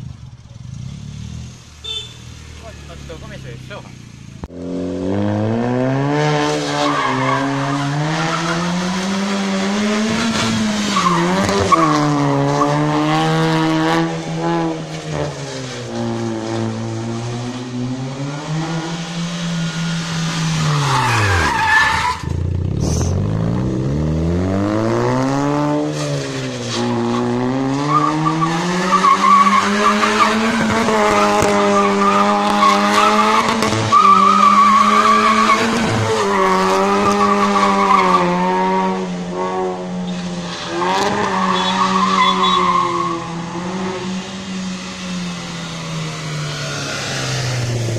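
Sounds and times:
car engine revving hard: 4.5s - 21.7s, 22.8s - 47.9s
tyres squealing on asphalt: 6.5s - 23.1s, 25.9s - 38.8s, 39.8s - 47.6s.

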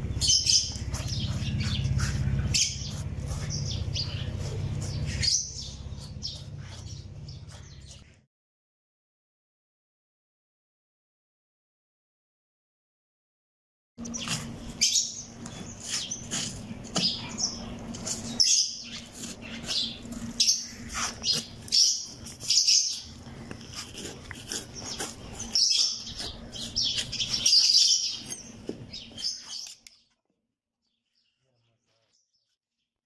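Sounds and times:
small birds chirping: 0.0s - 8.3s, 14.0s - 30.2s.

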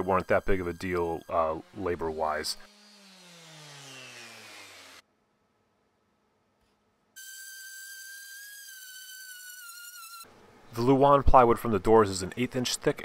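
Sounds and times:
orbital sander whining: 0.0s - 5.0s.

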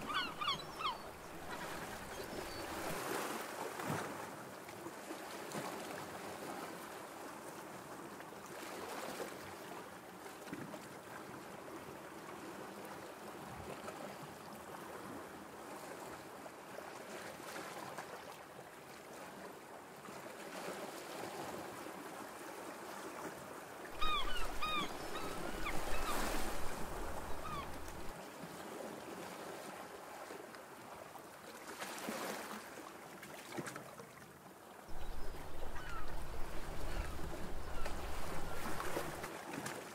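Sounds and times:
water lapping: 0.0s - 4.3s, 24.0s - 30.4s, 34.9s - 39.9s
wind: 0.0s - 39.9s.

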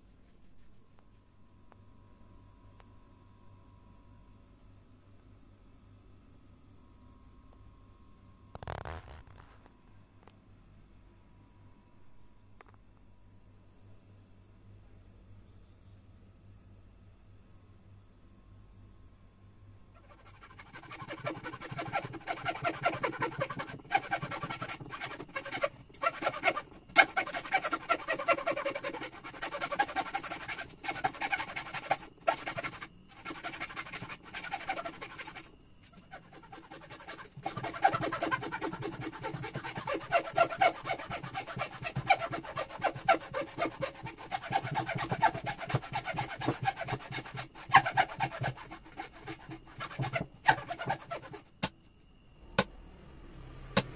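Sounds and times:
hacksaw cutting wood: 20.0s - 51.4s.

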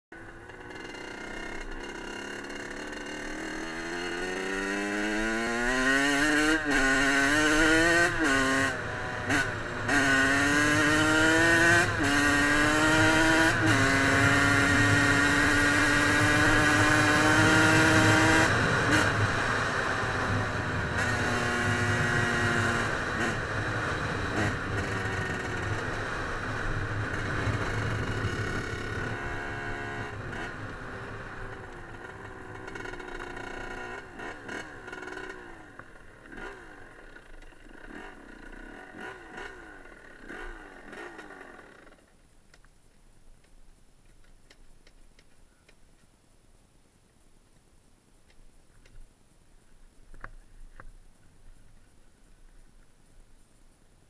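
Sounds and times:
dirt bike engine accelerating: 0.1s - 42.1s.

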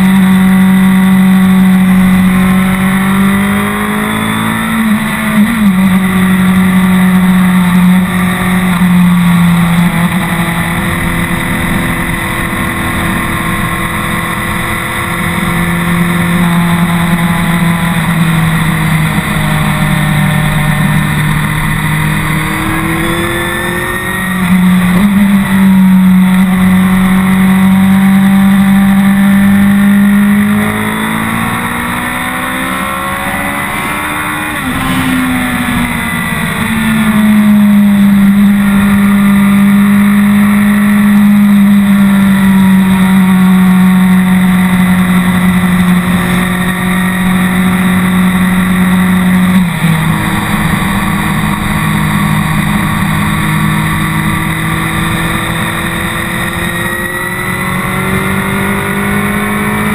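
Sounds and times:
motorcycle engine while riding: 0.0s - 59.9s.

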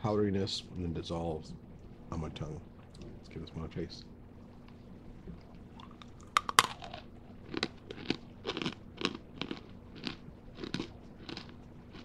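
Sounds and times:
crunching chews: 5.5s - 12.0s
candy cracking: 5.8s - 12.0s.

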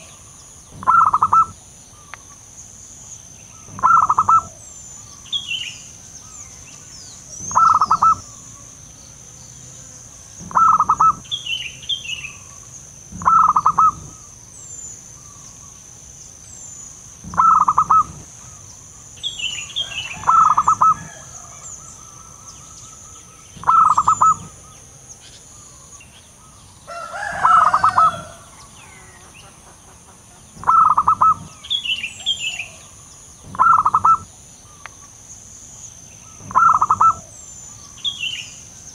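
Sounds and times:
small birds chirping: 0.0s - 38.9s
dove cooing with stuttering notes: 0.8s - 1.6s, 3.7s - 4.6s, 7.4s - 8.3s, 10.4s - 11.3s, 13.1s - 14.2s, 17.2s - 18.3s, 20.2s - 21.2s, 23.6s - 24.6s, 30.6s - 31.6s, 33.5s - 34.3s, 36.4s - 37.4s.

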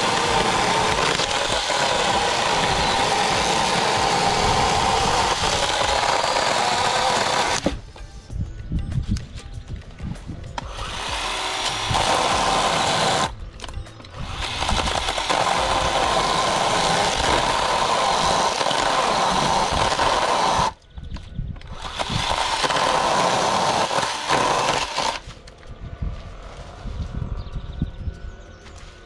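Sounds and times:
electric chainsaw running: 0.0s - 7.8s, 10.6s - 13.4s, 14.2s - 20.8s, 21.6s - 25.3s.

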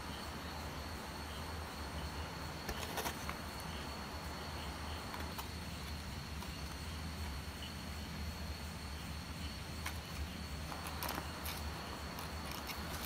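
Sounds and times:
low electrical hum: 0.0s - 13.0s
handling clicks and rustles: 2.6s - 3.7s, 9.8s - 13.0s.

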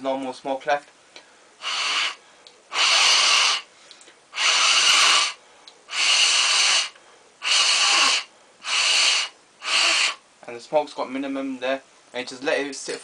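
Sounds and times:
breath blown through hookah bowl: 1.6s - 3.7s, 4.3s - 10.2s.

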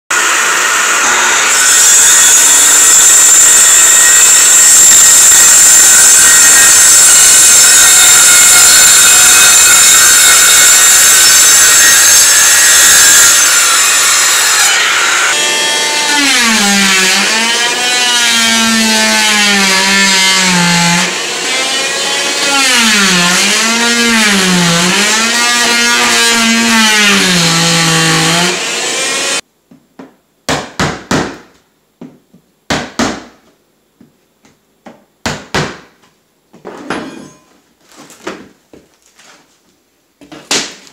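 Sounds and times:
circular saw cutting floorboards: 0.1s - 29.4s.

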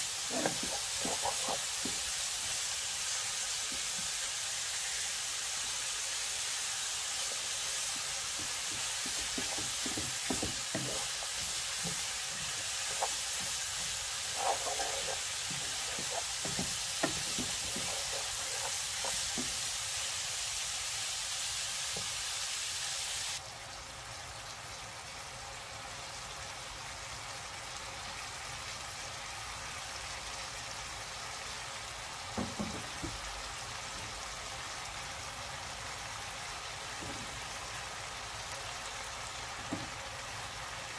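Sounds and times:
vegetables sizzling in pan: 0.0s - 40.9s
wooden spatula scraping pan: 0.2s - 2.1s, 8.0s - 19.7s.

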